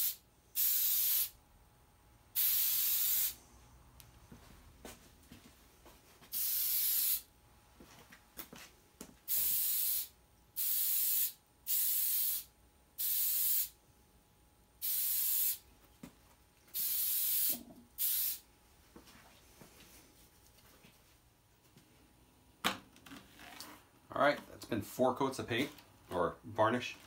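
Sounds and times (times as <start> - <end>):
aerosol spray can hissing: 0.0 - 1.4, 2.4 - 3.4, 6.3 - 7.3, 9.3 - 13.8, 14.8 - 15.6, 16.7 - 18.4.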